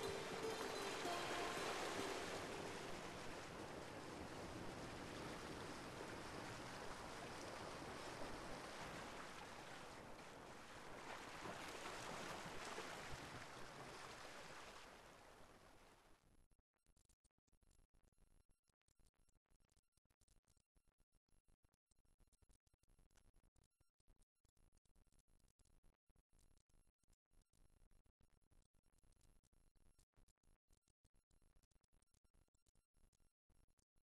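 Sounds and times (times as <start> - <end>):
sea waves rushing: 0.0 - 14.9.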